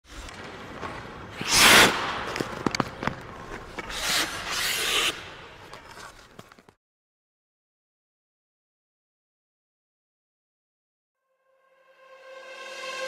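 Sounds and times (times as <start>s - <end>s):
skate blades scraping ice: 0.1s - 6.8s.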